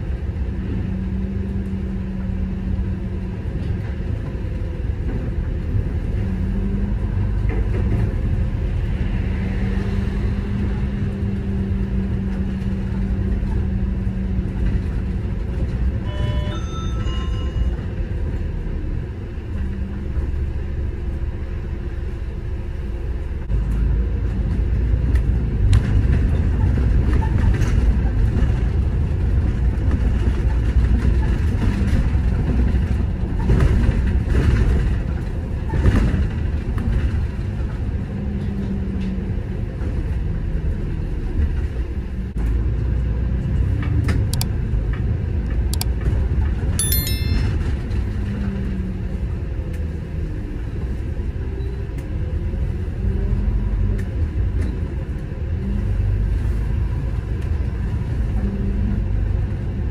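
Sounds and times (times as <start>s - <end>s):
bus engine and road rumble: 0.0s - 59.9s
high-pitched tone: 16.1s - 18.0s, 46.8s - 47.9s.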